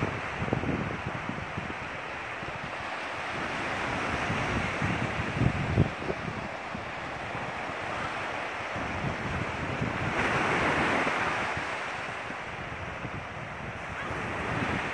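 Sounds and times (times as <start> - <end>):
surf washing onto sandy beach: 0.0 - 14.9
wind buffeting microphone: 0.0 - 14.9.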